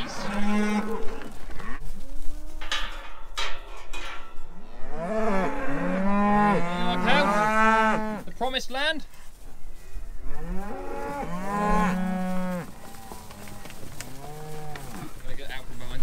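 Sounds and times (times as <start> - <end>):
cattle mooing: 0.0 - 1.8, 4.6 - 8.2, 10.2 - 15.2.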